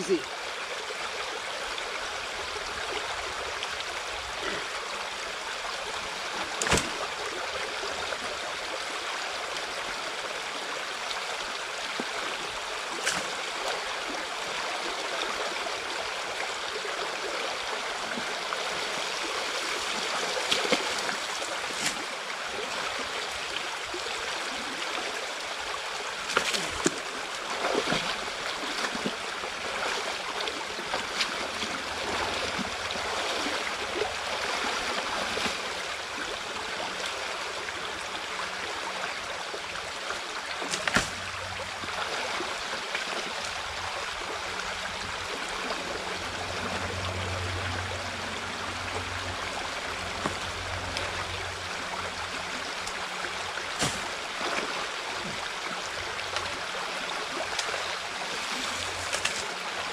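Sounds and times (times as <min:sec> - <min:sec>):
water rushing: 0:00.0 - 0:59.9
splashes or knocks: 0:06.6 - 0:07.1, 0:40.6 - 0:41.4, 0:53.7 - 0:55.4.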